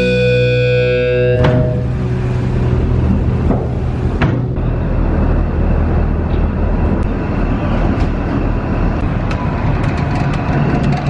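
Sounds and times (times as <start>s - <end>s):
ship engines rumbling: 0.0s - 11.0s
footsteps on metal grated stairs: 3.4s - 4.7s.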